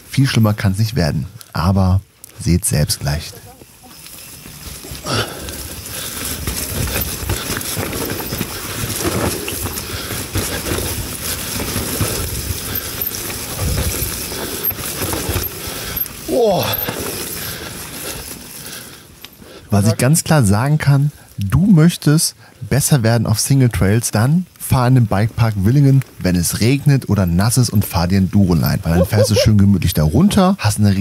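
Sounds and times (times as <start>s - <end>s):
tyres rumbling on trail: 0.0s - 31.0s
bike chain clattering: 3.2s - 20.0s, 26.0s - 30.2s.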